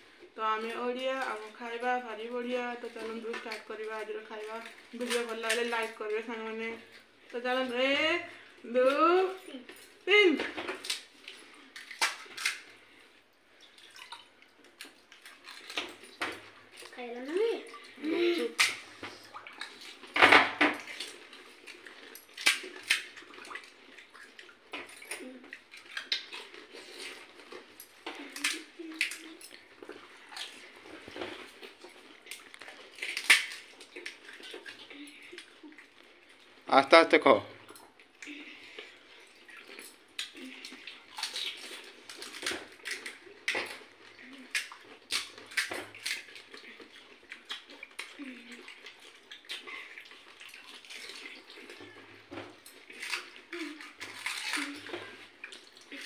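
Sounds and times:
wet splashing and slurping: 0:00.0 - 0:36.8, 0:37.5 - 0:56.0
eating noise: 0:20.8 - 0:56.0.

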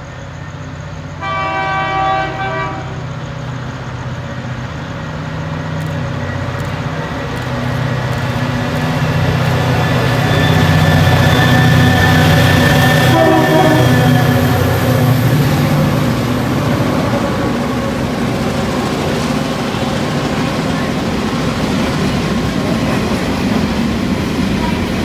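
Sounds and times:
locomotive engine drone: 0:00.0 - 0:25.0
locomotive horn blast: 0:01.2 - 0:03.1, 0:10.6 - 0:14.8.

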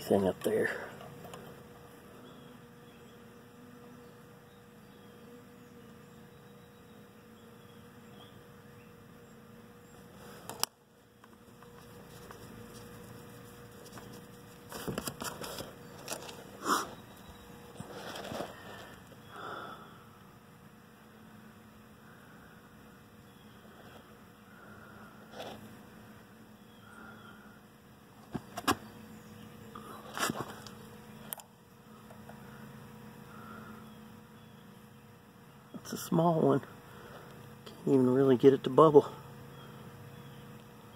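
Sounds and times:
faint background hum: 0:00.0 - 0:40.9
phone handling clicks and rustling: 0:10.4 - 0:11.8.

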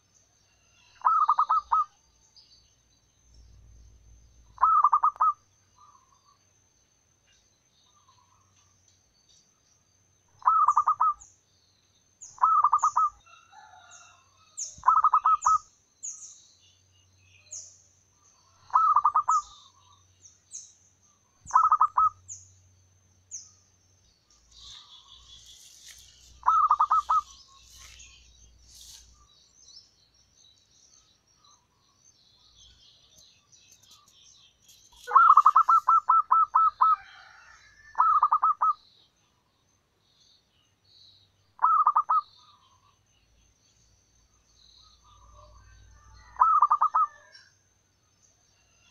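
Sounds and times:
small bird chirping: 0:00.0 - 0:06.6, 0:07.2 - 0:48.9
bird twittering: 0:01.0 - 0:02.0, 0:04.6 - 0:06.3, 0:10.4 - 0:11.3, 0:12.2 - 0:13.2, 0:14.8 - 0:16.2, 0:18.6 - 0:20.0, 0:21.4 - 0:22.5, 0:24.3 - 0:29.3, 0:32.7 - 0:37.0, 0:41.6 - 0:42.9, 0:46.2 - 0:47.4
dove cooing: 0:04.6 - 0:05.4, 0:10.4 - 0:11.2, 0:18.6 - 0:19.5, 0:21.5 - 0:22.2, 0:26.4 - 0:27.4, 0:35.1 - 0:37.4, 0:38.0 - 0:38.8, 0:41.6 - 0:42.2.

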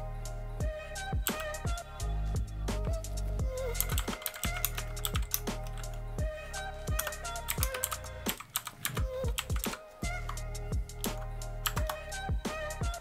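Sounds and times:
background music: 0:00.0 - 0:13.0
mechanical keyboard clicks: 0:03.8 - 0:05.8, 0:07.0 - 0:09.8.

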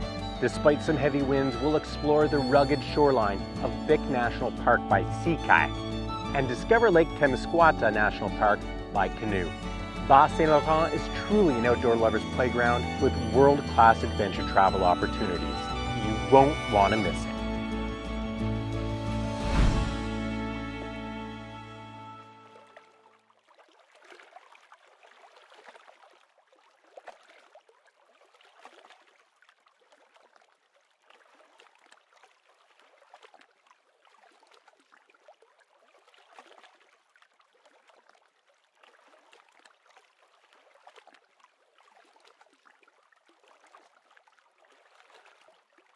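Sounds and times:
water lapping and splashing: 0:22.4 - 0:45.9.

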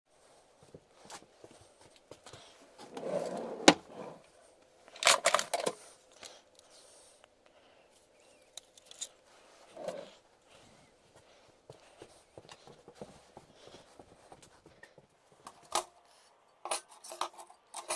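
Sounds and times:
metal drawer sliding open: 0:02.9 - 0:04.2.

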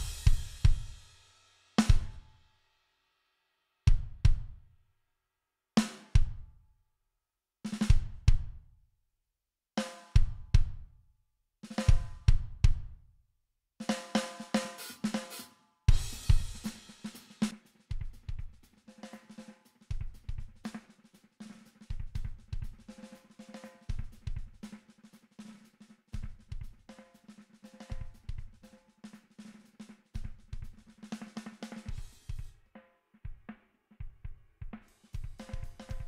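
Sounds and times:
distorted drum kit phrases: 0:00.0 - 0:02.2, 0:13.8 - 0:32.6, 0:33.3 - 0:36.0.

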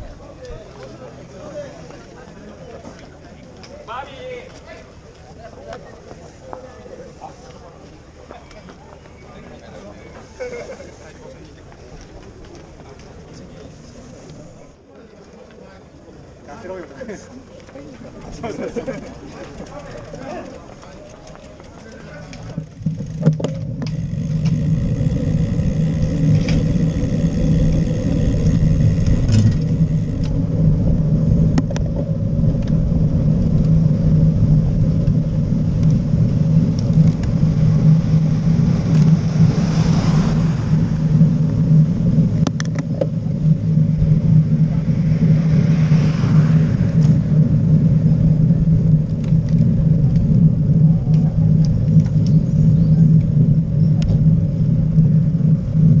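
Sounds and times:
bicycle tyres on tarmac: 0:00.0 - 0:56.0
wind rumble on microphone: 0:22.3 - 0:56.0.

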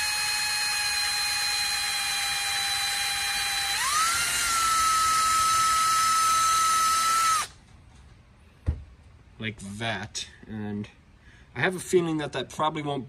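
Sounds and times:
electric drill motor whine: 0:00.0 - 0:07.6.

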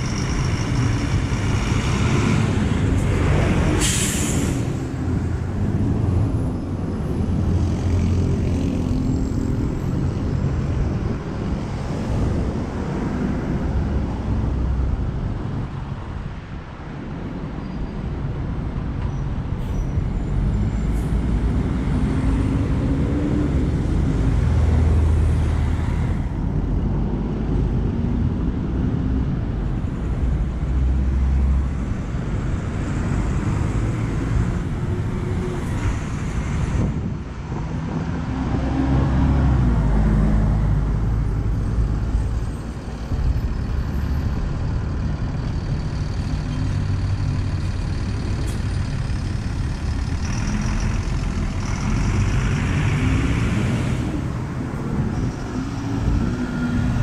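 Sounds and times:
bus diesel engines: 0:00.0 - 0:57.0
passing car traffic: 0:00.0 - 0:57.0
bus brake hiss: 0:03.8 - 0:04.8.

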